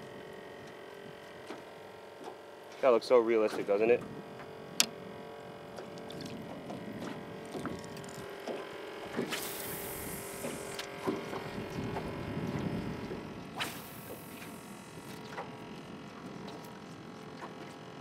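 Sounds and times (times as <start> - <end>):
small motor humming: 4.0 - 18.0.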